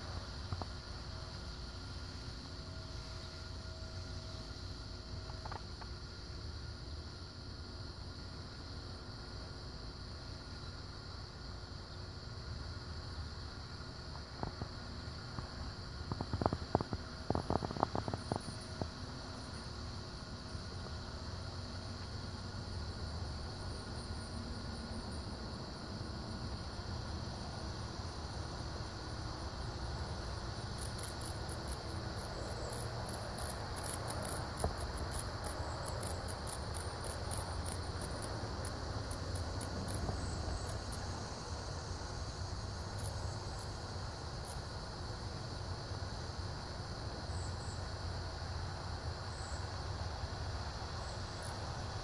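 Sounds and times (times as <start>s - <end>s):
high-pitched insect ticking: 5.1s - 6.2s, 14.4s - 19.6s, 28.8s - 41.5s, 42.2s - 44.9s
steady low rumble: 14.2s - 46.0s.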